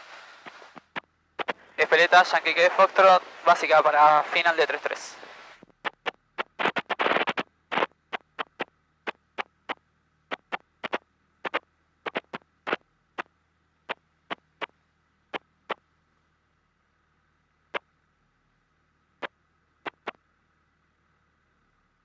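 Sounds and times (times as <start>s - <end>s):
faint low hum: 0.0s - 22.0s
headset static clicks: 0.4s - 5.0s, 5.6s - 13.3s, 19.9s - 20.2s.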